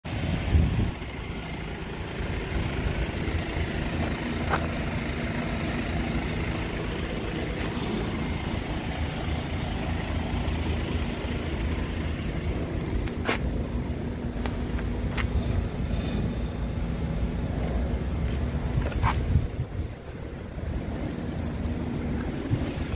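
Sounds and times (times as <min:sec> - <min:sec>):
low vehicle rumble: 0:00.0 - 0:22.9
wind on microphone: 0:18.8 - 0:20.4.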